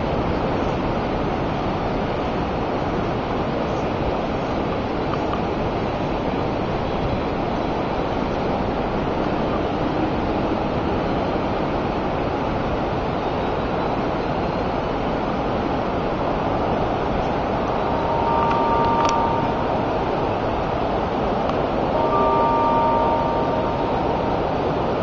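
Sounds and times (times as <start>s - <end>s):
river water rushing: 0.0s - 25.0s
faint steady tone: 16.5s - 25.0s.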